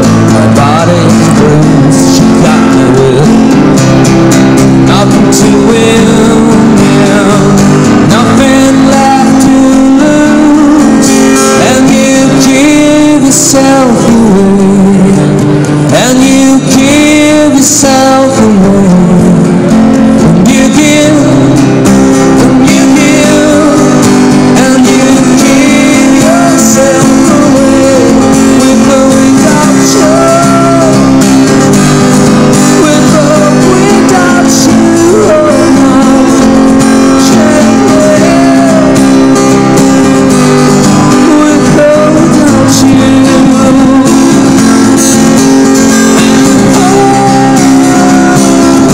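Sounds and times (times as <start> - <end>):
person singing: 0.0 - 3.8, 4.6 - 48.9
strummed acoustic guitar: 0.0 - 48.9.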